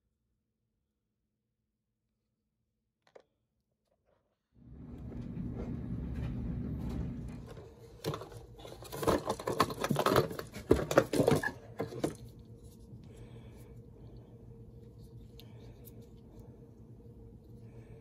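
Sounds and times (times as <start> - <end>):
cardboard box crackling and rustling: 7.4 - 12.4.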